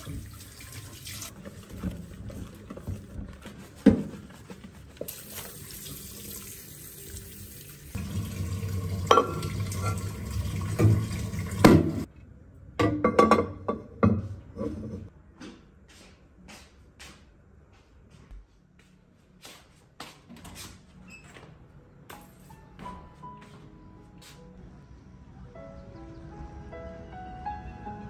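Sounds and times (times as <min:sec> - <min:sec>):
water running from a tap: 0:00.0 - 0:01.7, 0:05.1 - 0:12.1.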